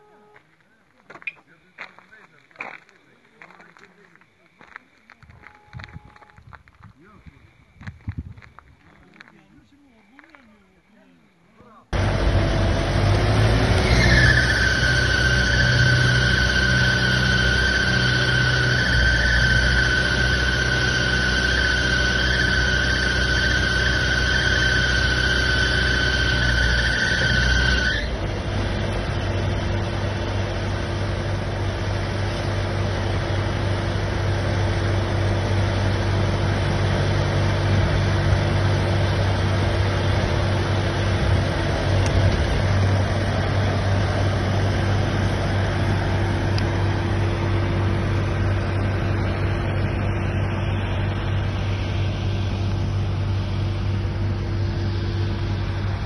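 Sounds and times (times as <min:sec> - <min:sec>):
high steady whine: 0:00.0 - 0:56.0
engine and pump drone: 0:11.9 - 0:56.0.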